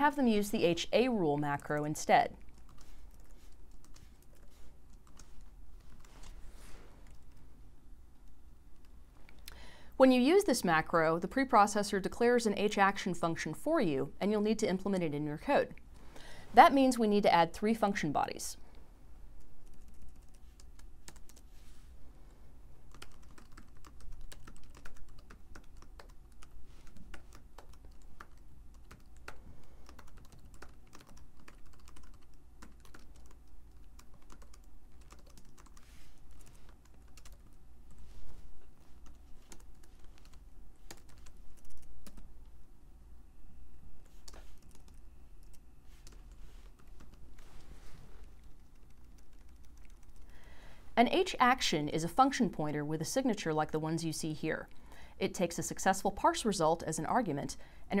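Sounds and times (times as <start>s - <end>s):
typing on a keyboard: 22.9s - 38.0s, 39.0s - 42.3s, 44.0s - 47.2s, 48.5s - 50.3s.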